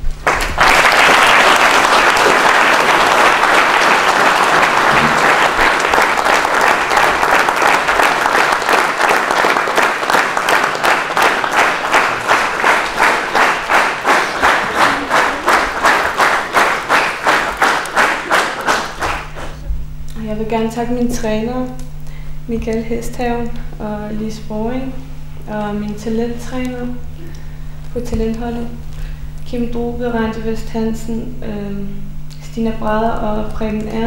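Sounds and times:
rhythmic clapping in unison: 0:00.0 - 0:20.3
audience applause: 0:00.2 - 0:19.6.

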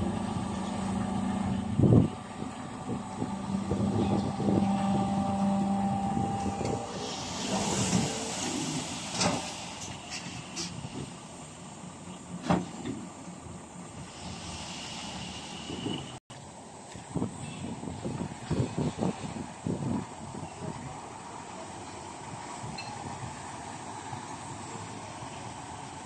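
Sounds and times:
truck engine running: 0:00.0 - 0:07.5
soil sliding with hissing rush: 0:06.8 - 0:11.6, 0:14.0 - 0:16.0.

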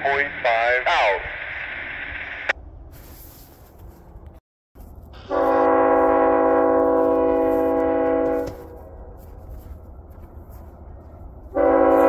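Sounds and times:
radio hiss: 0:00.0 - 0:02.6
locomotive air horn: 0:05.2 - 0:09.1, 0:11.5 - 0:12.0.

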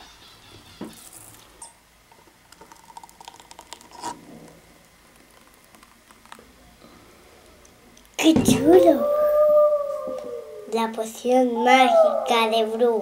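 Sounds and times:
thick drink pouring: 0:02.2 - 0:06.7
sipping through a straw: 0:02.7 - 0:04.5.

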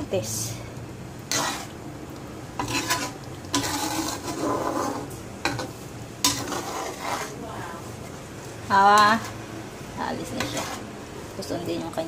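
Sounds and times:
curry simmering: 0:00.0 - 0:12.0
ladle scraping a pan: 0:01.2 - 0:01.8, 0:02.5 - 0:08.2, 0:10.3 - 0:11.0.

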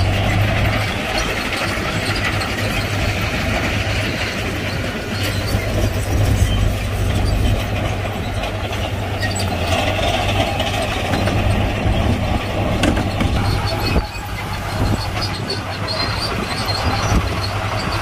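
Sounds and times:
heavy diesel engine running: 0:00.0 - 0:18.0
metal clanks: 0:05.2 - 0:16.2.

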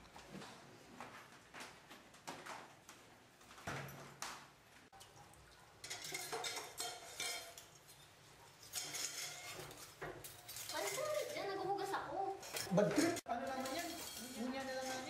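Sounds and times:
dishes and cutlery clinking: 0:04.9 - 0:15.0.

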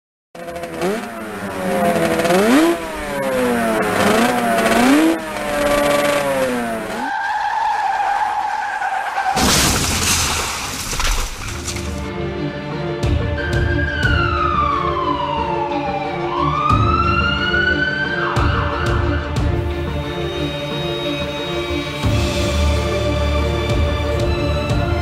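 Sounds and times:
motorcycle engine revving: 0:00.4 - 0:07.1
tire squeal: 0:00.4 - 0:09.5
loud crash: 0:09.3 - 0:12.0.

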